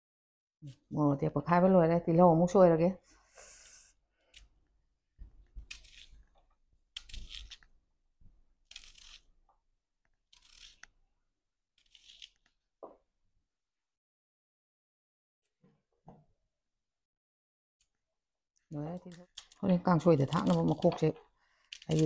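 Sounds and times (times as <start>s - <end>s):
knife crunching through onion: 5.6s - 6.2s, 6.9s - 7.7s, 8.6s - 9.3s, 10.3s - 10.9s.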